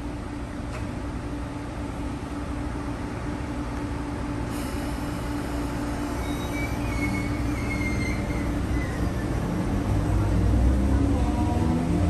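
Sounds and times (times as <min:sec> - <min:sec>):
electric train pulling away: 0:04.4 - 0:12.0
thin high squeal: 0:06.1 - 0:09.4.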